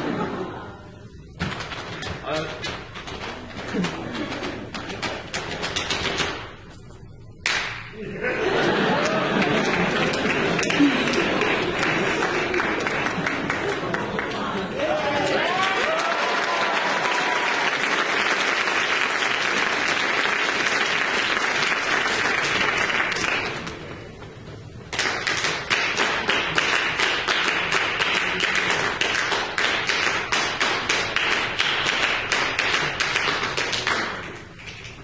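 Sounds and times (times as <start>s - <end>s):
audience applauding: 8.4s - 23.9s, 24.9s - 34.8s.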